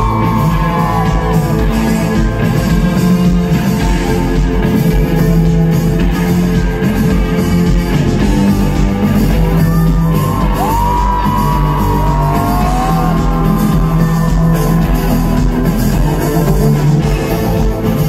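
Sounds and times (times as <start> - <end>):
live rock band playing: 0.0 - 18.0.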